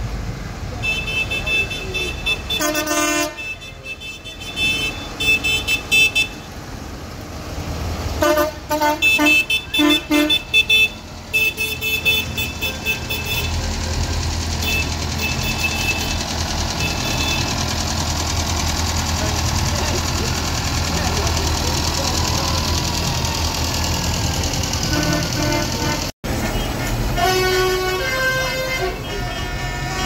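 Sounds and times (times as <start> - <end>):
diesel engine rumble: 0.0 - 30.0
tractor horn tooting: 0.8 - 6.5, 8.2 - 13.9, 14.6 - 17.9, 24.7 - 30.0.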